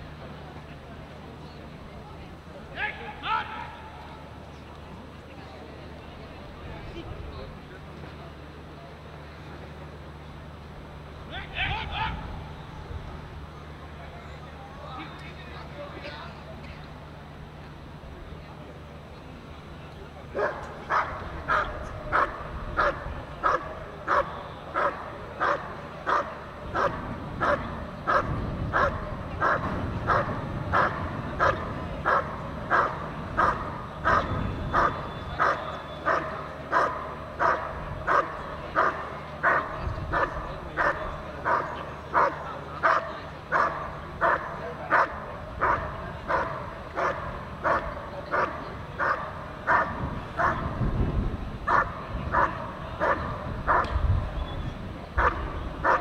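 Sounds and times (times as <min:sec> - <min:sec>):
dog barking: 0:20.4 - 0:50.7, 0:51.7 - 0:53.9, 0:55.2 - 0:56.0.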